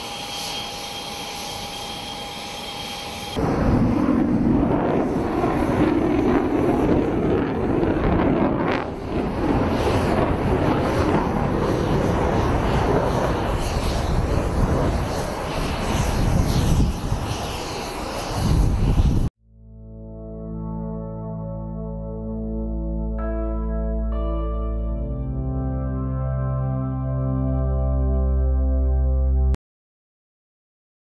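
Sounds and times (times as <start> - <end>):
jet engines roaring: 0.0 - 19.3.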